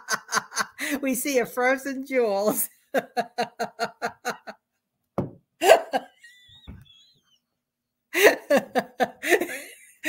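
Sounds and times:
woman laughing: 0.0s - 1.0s, 2.4s - 4.6s, 5.6s - 7.3s, 8.2s - 10.0s.

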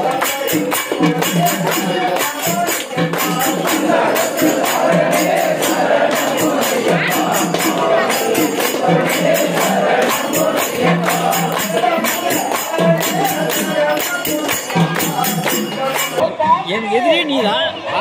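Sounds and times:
group singing devotional song: 0.0s - 16.2s
hand claps: 0.0s - 16.2s
jingling percussion beat: 0.0s - 16.2s.

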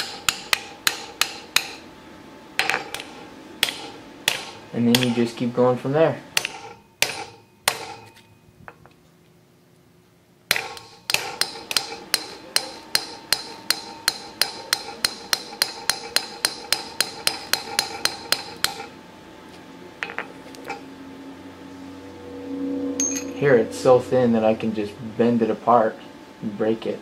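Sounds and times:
hammer tapping a chisel: 0.0s - 1.8s, 2.6s - 5.2s, 6.4s - 8.2s, 10.5s - 18.9s.

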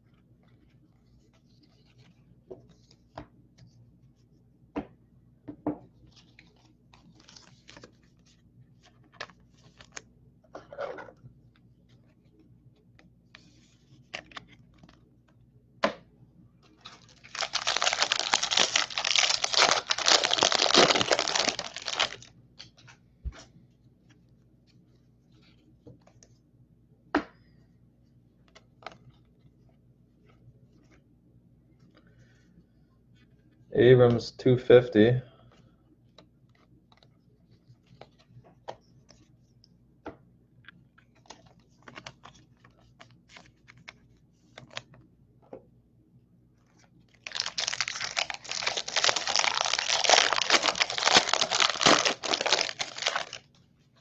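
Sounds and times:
cards clicking and rustling: 16.8s - 22.9s, 46.8s - 53.4s
foil wrapper tearing and crinkling: 17.0s - 22.3s, 47.2s - 53.4s.

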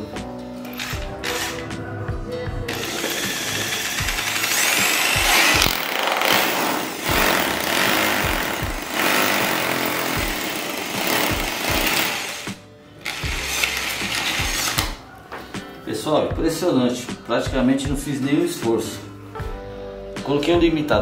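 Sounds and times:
rotary hammer drilling into wall: 2.7s - 14.9s.

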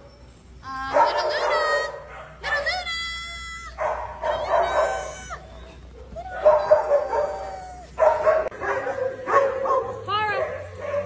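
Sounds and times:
dog whining and yipping: 4.6s - 8.2s.

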